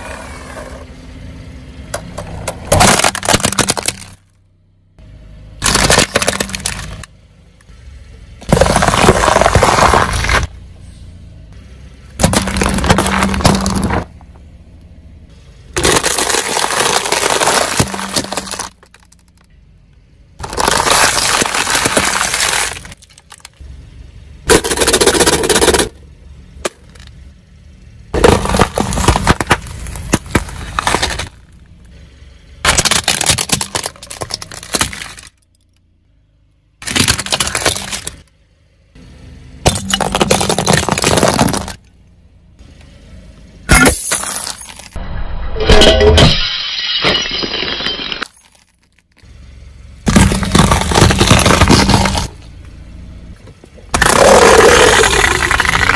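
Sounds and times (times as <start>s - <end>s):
tyre crushing objects: 5.6s - 7.0s, 8.4s - 10.5s, 12.2s - 14.1s, 15.8s - 19.0s, 20.4s - 23.5s, 28.2s - 31.5s, 32.7s - 35.3s, 36.8s - 38.2s, 39.7s - 41.8s, 50.1s - 52.4s, 53.9s - 55.9s.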